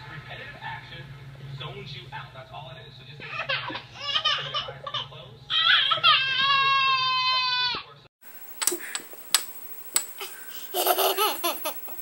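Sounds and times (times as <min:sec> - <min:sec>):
baby laughing: 0:03.2 - 0:06.4, 0:10.2 - 0:12.0
baby squealing: 0:05.5 - 0:07.8.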